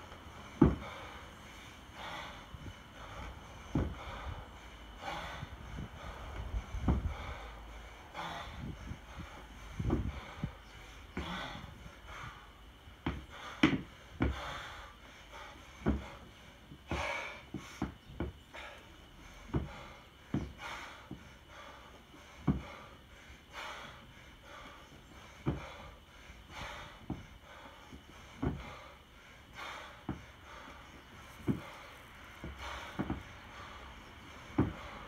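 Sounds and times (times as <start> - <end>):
man breathing hard: 0.0 - 35.0
kettlebell thud: 0.6 - 0.9.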